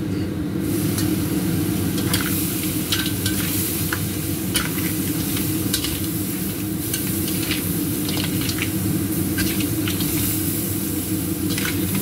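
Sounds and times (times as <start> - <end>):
crab sizzling in a wok: 0.5 - 12.0.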